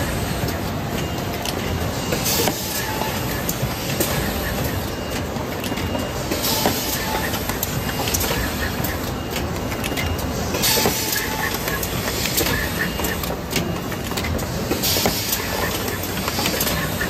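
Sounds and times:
machine clattering and clicking: 0:00.3 - 0:17.0.

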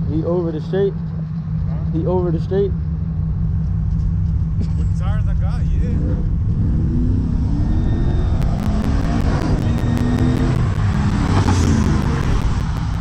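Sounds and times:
racing car engines passing: 0:04.3 - 0:13.0.

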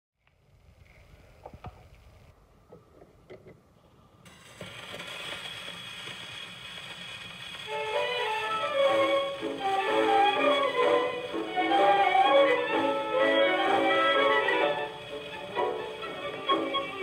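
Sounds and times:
record surface hiss and crackle: 0:00.2 - 0:17.0
tango orchestra music: 0:07.7 - 0:17.0.

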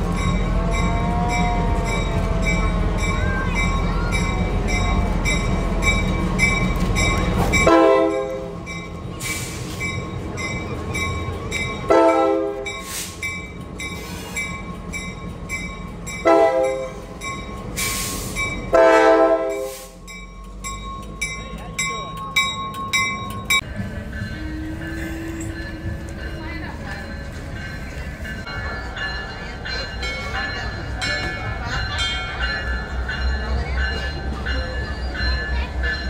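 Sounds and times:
locomotive bell ringing: 0:00.0 - 0:36.0
train horn blasts: 0:07.6 - 0:08.6, 0:11.9 - 0:12.9, 0:16.2 - 0:17.0, 0:18.7 - 0:20.0.

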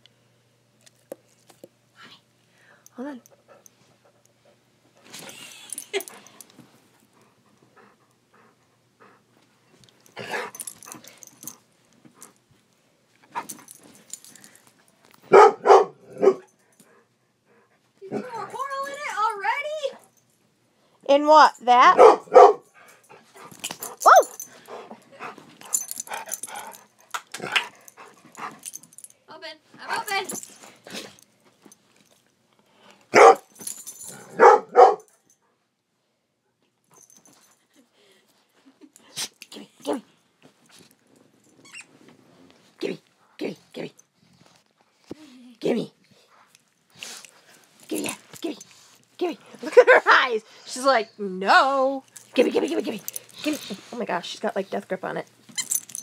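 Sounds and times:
dog barking: 0:15.3 - 0:16.5, 0:21.9 - 0:22.6, 0:33.1 - 0:33.5, 0:34.3 - 0:35.1.

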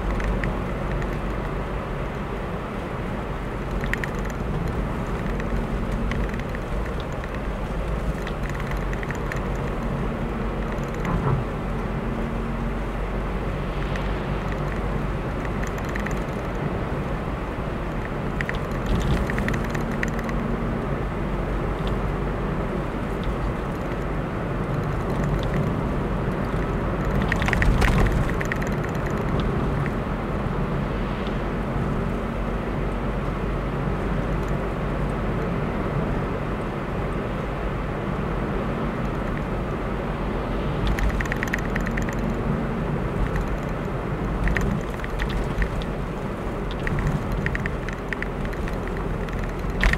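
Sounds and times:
car engine and tyre rumble: 0:00.0 - 0:49.9
light rattling clicks: 0:03.6 - 0:09.9, 0:13.8 - 0:16.6, 0:17.9 - 0:20.4, 0:23.2 - 0:30.0, 0:40.8 - 0:42.4, 0:43.2 - 0:49.9.

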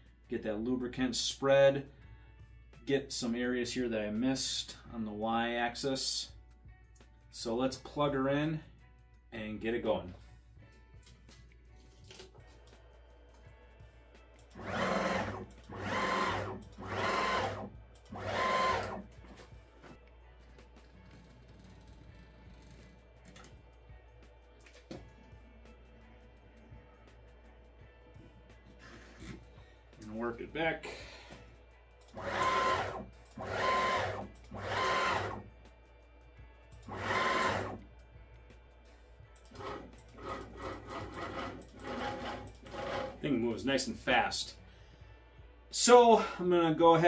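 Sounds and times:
stepper motors whining: 0:14.6 - 0:19.0, 0:32.1 - 0:35.4, 0:36.9 - 0:37.8.

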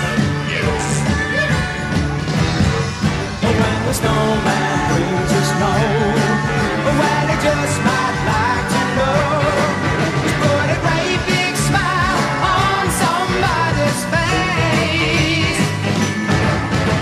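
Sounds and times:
person singing with vibrato: 0:03.4 - 0:15.8.

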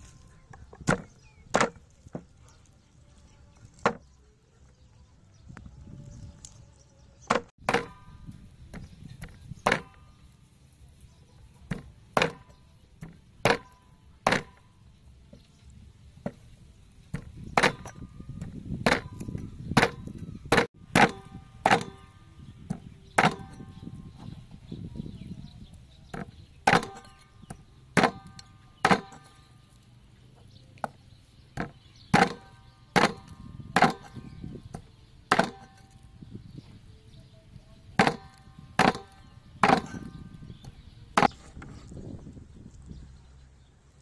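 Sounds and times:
cleaver chopping on wooden board: 0:00.8 - 0:02.3, 0:03.8 - 0:04.0, 0:07.3 - 0:08.1, 0:08.7 - 0:10.0, 0:11.7 - 0:14.6, 0:17.1 - 0:19.2, 0:19.8 - 0:22.1, 0:22.7 - 0:23.7, 0:26.1 - 0:29.4, 0:31.6 - 0:36.0, 0:38.0 - 0:40.2.

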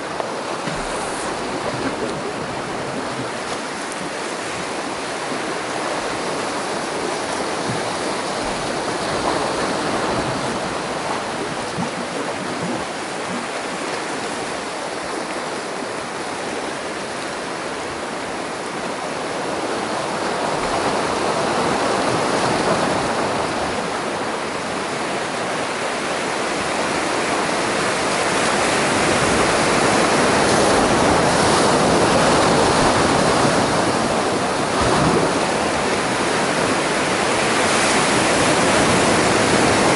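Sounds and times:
surf breaking over rocks: 0:00.0 - 0:15.0, 0:26.6 - 0:39.9.

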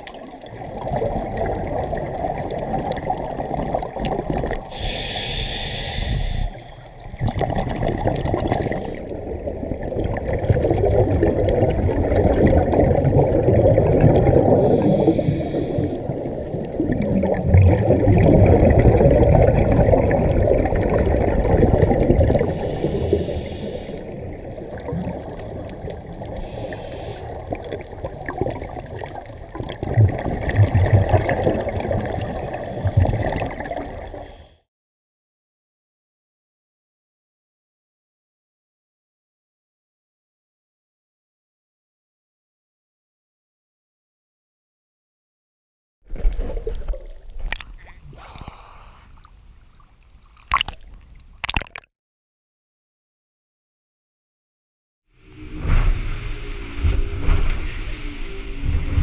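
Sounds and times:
scuba regulator exhaled bubbles: 0:00.0 - 0:34.6, 0:46.1 - 0:51.9
regulator hissing inhalations: 0:04.7 - 0:06.9, 0:14.6 - 0:16.1, 0:22.5 - 0:24.2, 0:26.4 - 0:27.4, 0:48.1 - 0:49.3.

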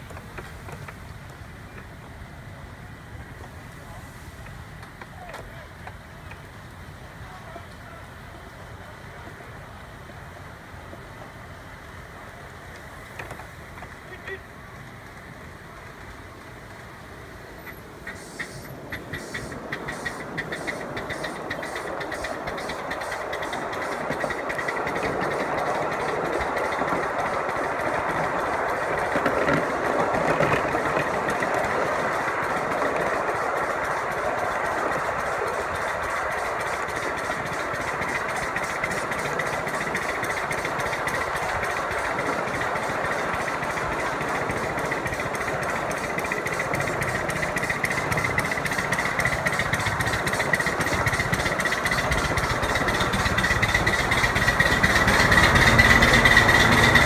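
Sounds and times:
miniature train running on track: 0:00.0 - 0:57.0
fast regular clicking: 0:18.0 - 0:57.0.

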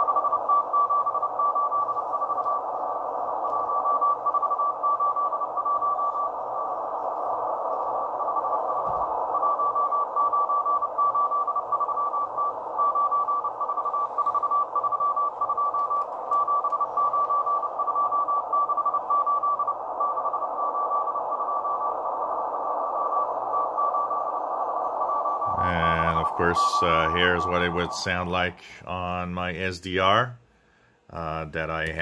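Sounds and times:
radio static hiss: 0:00.0 - 0:30.4, 0:31.1 - 0:32.0
morse code beeping tone: 0:25.1 - 0:28.6.

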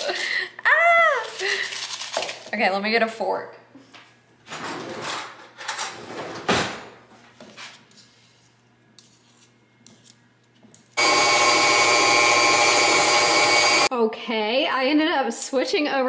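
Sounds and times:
fork and whisk scraping a bowl: 0:07.8 - 0:10.2
stand mixer motor: 0:11.0 - 0:13.9.

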